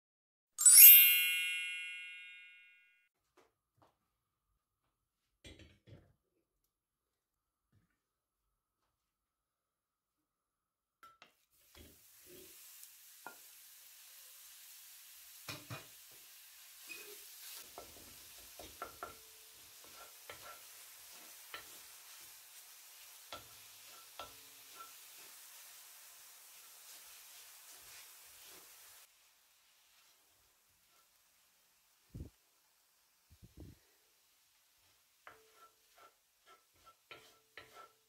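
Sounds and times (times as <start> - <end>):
meat sizzling in a pan: 11.5 - 38.0
wooden spoon scraping a pan: 16.8 - 29.1, 29.7 - 31.5, 34.7 - 38.0.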